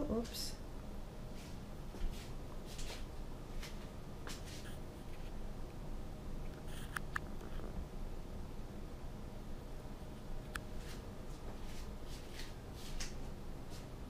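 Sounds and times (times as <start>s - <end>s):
soft rustles and scrapes: 1.3s - 5.4s, 10.7s - 14.0s.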